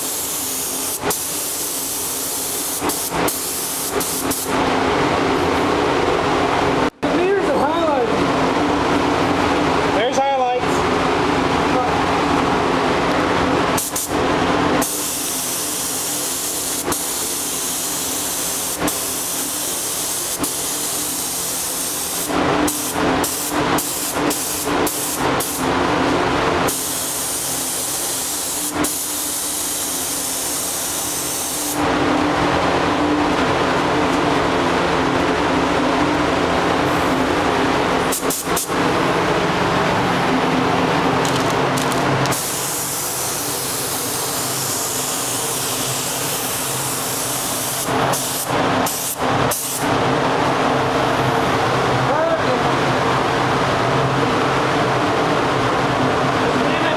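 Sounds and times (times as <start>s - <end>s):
paint spray gun hissing: 0.0s - 4.5s, 13.8s - 14.2s, 14.8s - 25.7s, 26.7s - 31.8s, 38.1s - 38.8s, 42.3s - 49.8s
steady low hum: 0.0s - 56.9s.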